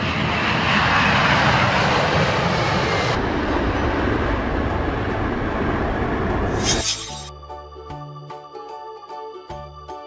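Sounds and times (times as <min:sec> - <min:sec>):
jet engines roaring at takeoff: 0:00.0 - 0:07.3.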